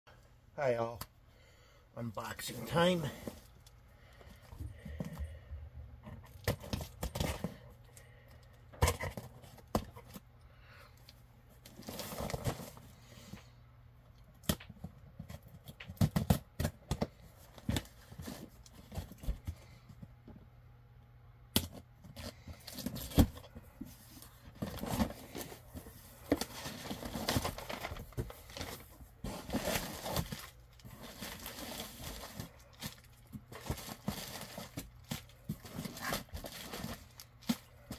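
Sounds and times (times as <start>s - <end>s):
cardboard scraping and rustling: 11.7s - 12.9s, 22.1s - 37.9s.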